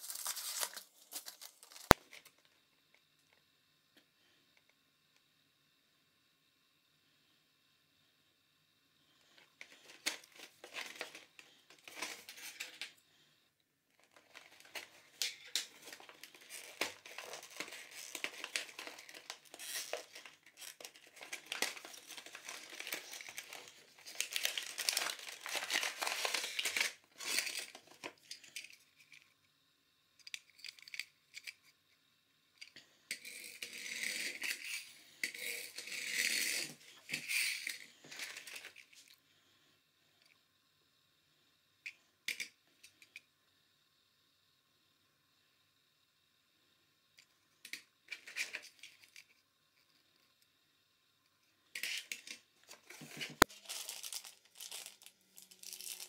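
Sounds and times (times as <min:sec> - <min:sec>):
plastic packaging crinkling: 0:00.0 - 0:02.4, 0:09.6 - 0:12.9, 0:14.0 - 0:28.6, 0:51.8 - 0:56.0
cardboard box being opened: 0:15.7 - 0:27.7.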